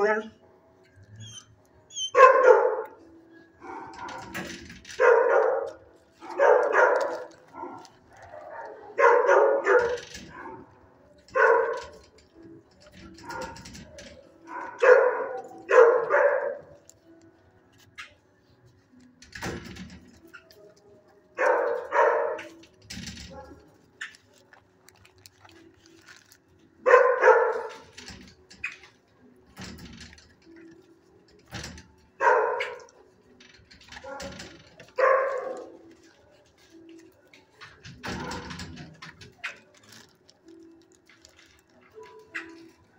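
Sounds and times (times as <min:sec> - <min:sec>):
dogs barking: 0:02.0 - 0:17.0, 0:20.5 - 0:24.3, 0:26.6 - 0:28.8, 0:31.6 - 0:33.2, 0:33.8 - 0:39.8.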